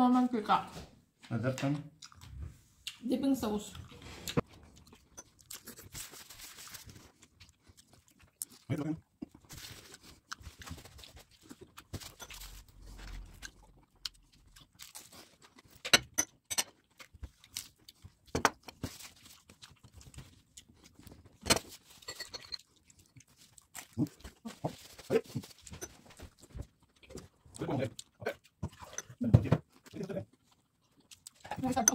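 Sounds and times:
chewing with wet mouth smacks: 7.1 - 11.9, 12.9 - 21.4, 22.6 - 31.9.

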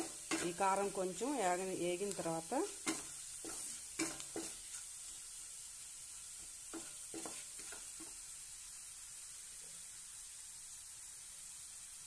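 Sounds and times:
spatula scraping a pan: 0.0 - 0.9, 2.6 - 5.4, 6.2 - 8.3
food sizzling in oil: 0.0 - 12.0.

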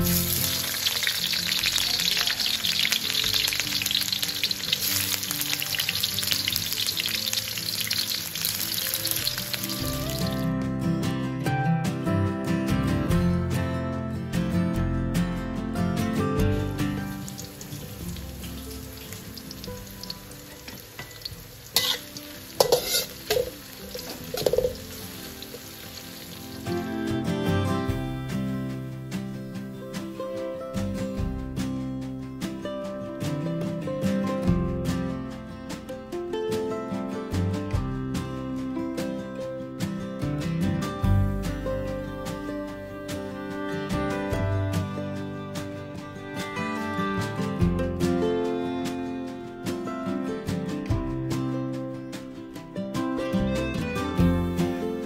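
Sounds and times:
onion sizzling in hot oil: 0.0 - 10.5, 16.9 - 27.0
metal spatula scraping a wok: 18.9 - 26.4.

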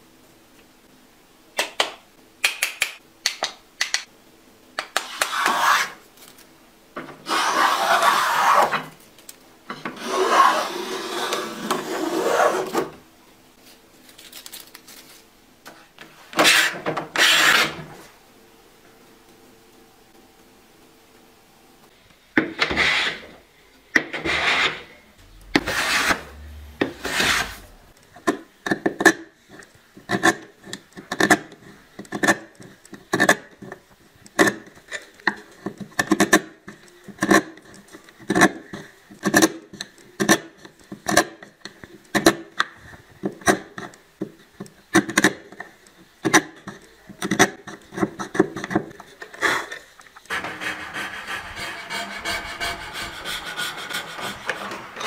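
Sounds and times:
edge tool scraping wood chips: 5.0 - 6.0, 24.2 - 27.8
hand plane strokes on wood: 5.0 - 6.0, 7.2 - 8.8, 24.1 - 27.9, 50.3 - 55.0.

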